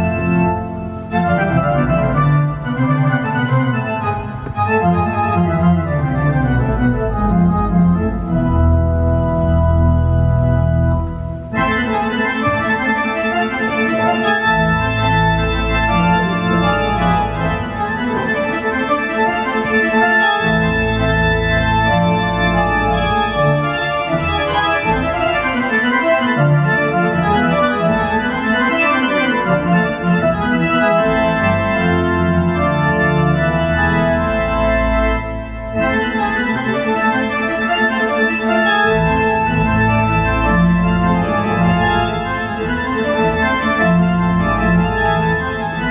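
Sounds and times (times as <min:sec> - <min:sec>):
synthesizer chords with bass notes: 0:03.2 - 0:11.4.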